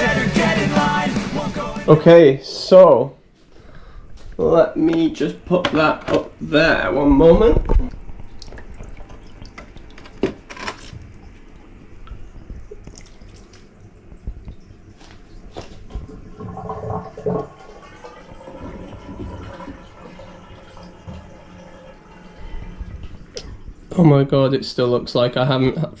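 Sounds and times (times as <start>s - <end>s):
water splashing and trickling: 6.6s - 24.2s.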